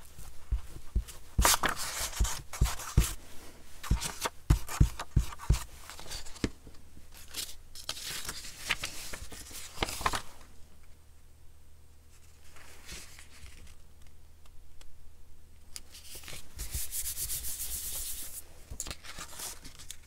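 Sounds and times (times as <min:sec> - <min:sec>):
paper rustling and scraping: 0:00.2 - 0:06.5, 0:07.2 - 0:10.5, 0:12.1 - 0:13.8, 0:15.9 - 0:20.0.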